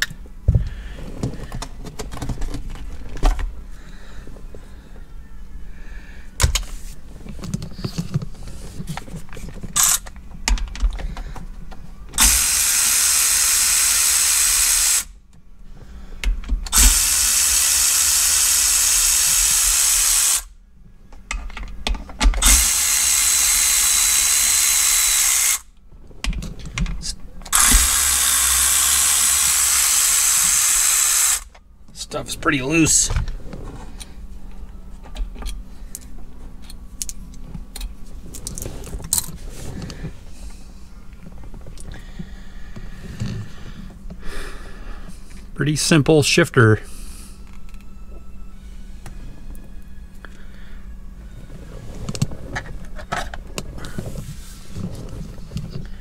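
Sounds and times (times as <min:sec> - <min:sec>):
cordless power driver running: 0:09.8 - 0:10.1, 0:12.2 - 0:15.2, 0:16.7 - 0:20.5, 0:22.4 - 0:25.7, 0:27.5 - 0:31.6
tool handling clicks and knocks: 0:21.1 - 0:22.6.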